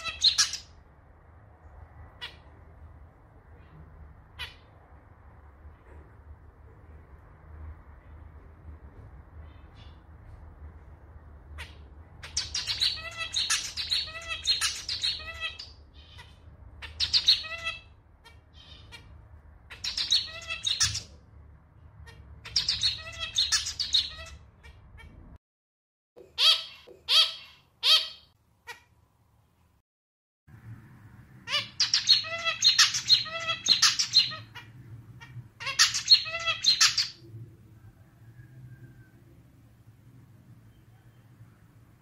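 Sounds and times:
finch singing: 0.0 - 0.7, 11.6 - 19.1, 19.7 - 21.2, 22.1 - 25.2, 31.5 - 37.2.

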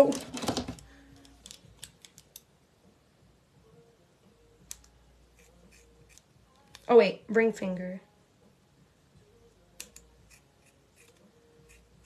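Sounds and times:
scissors snipping hair: 4.6 - 6.9, 9.7 - 12.0.

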